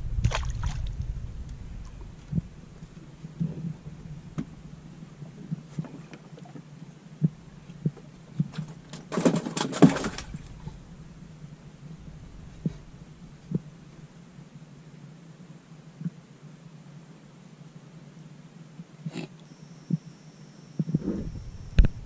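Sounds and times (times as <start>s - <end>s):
clattering and rustling: 8.4s - 10.8s.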